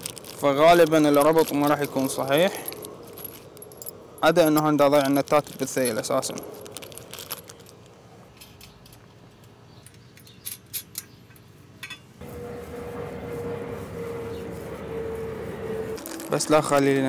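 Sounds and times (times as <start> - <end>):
metal bolts clinking: 0.3 - 12.2
steady hum with high tone: 12.2 - 16.7.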